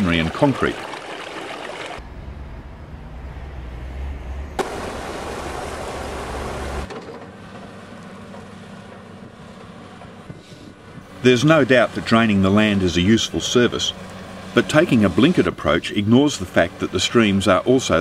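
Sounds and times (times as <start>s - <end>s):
rushing floodwater rumble: 0.0s - 6.9s, 11.0s - 18.0s
excavator engine hum: 0.1s - 18.0s.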